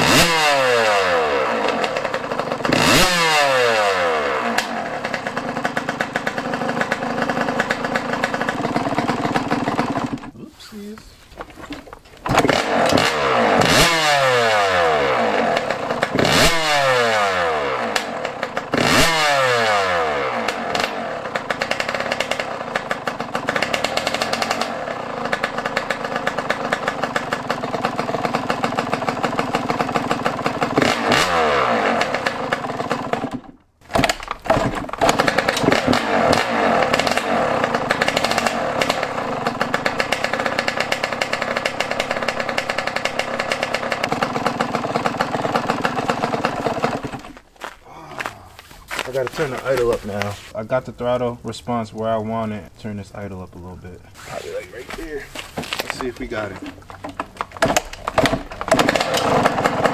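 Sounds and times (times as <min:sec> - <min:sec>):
two-stroke engine revving: 0:00.0 - 0:10.4, 0:11.4 - 0:48.3, 0:54.2 - 0:59.9.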